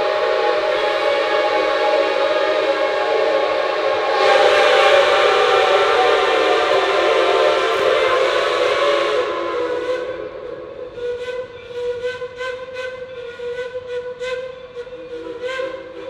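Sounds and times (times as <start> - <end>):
steam hiss: 0.0 - 11.2
steam locomotive chime whistle: 0.0 - 16.0.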